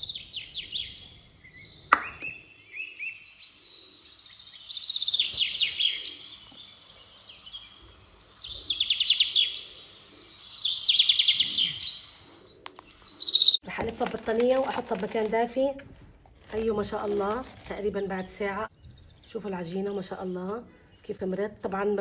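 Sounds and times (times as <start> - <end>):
small bird chirping: 0.0 - 13.6
sharp tap: 1.9 - 2.4.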